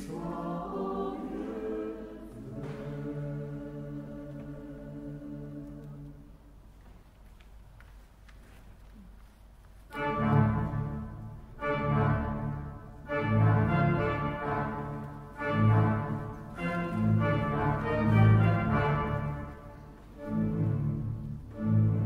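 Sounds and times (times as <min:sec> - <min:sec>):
pipe organ playing chords: 0:09.9 - 0:22.0.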